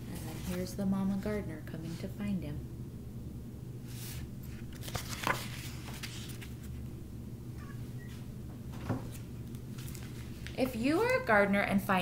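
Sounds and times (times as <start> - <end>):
low room hum: 0.0 - 12.0
book page rustling: 0.1 - 0.8, 3.9 - 6.8, 9.1 - 11.3.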